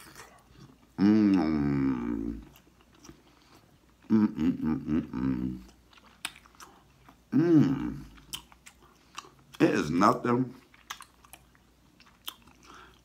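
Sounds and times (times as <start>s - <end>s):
man chewing food: 0.0s - 13.0s
man humming mmm: 1.0s - 2.5s, 4.0s - 5.7s, 7.3s - 8.2s.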